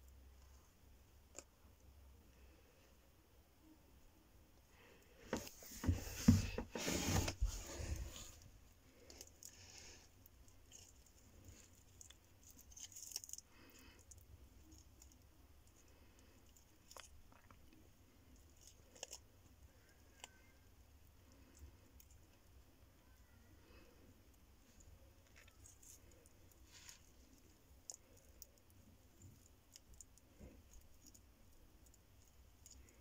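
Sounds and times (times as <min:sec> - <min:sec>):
loud rustling and scraping: 0:05.2 - 0:08.5
tortoise crunching leaf: 0:09.0 - 0:15.2.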